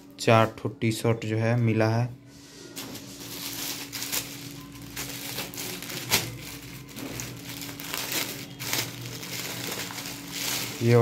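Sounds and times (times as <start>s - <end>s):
plastic bags crinkling: 2.8s - 11.0s
sharp plastic crackle: 2.8s - 11.0s.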